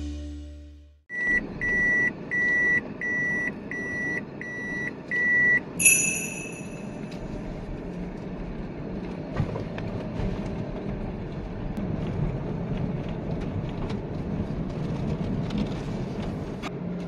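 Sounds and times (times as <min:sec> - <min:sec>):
reversing beeper beeps: 0:01.1 - 0:06.9.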